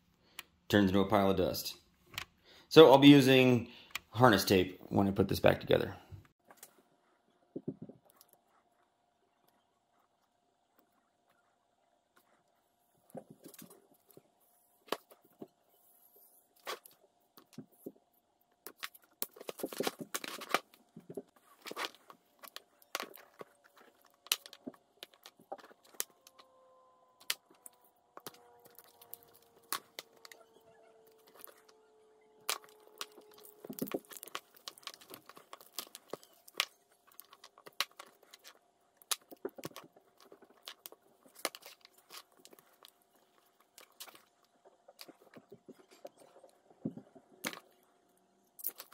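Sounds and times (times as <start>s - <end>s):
wire insulation crackling and tearing: 18.6s - 47.8s, 48.5s - 48.9s.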